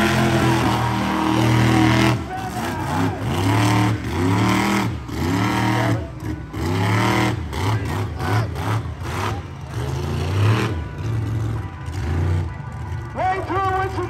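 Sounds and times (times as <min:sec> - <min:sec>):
monster truck engine revving: 0:00.0 - 0:12.9.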